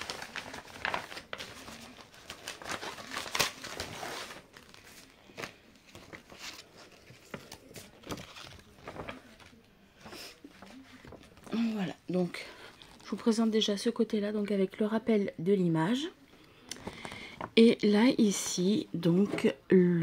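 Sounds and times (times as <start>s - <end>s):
packaging crinkling and rustling: 0.0s - 11.5s.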